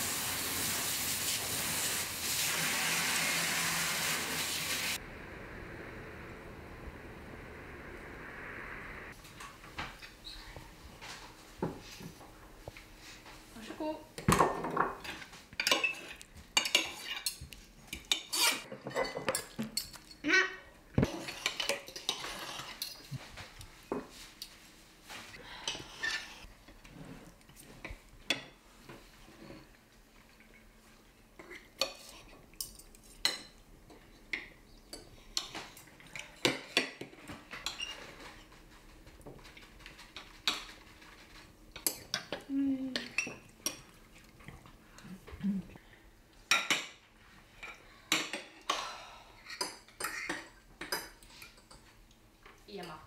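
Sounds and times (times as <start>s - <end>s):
dishes and cutlery clinking: 14.2s - 20.2s, 39.3s - 44.0s, 49.5s - 53.0s.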